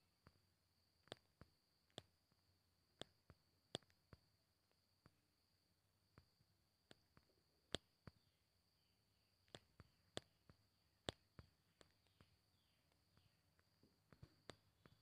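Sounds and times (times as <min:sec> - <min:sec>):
faint clicks: 0:00.2 - 0:05.2, 0:06.0 - 0:08.3, 0:09.4 - 0:15.0.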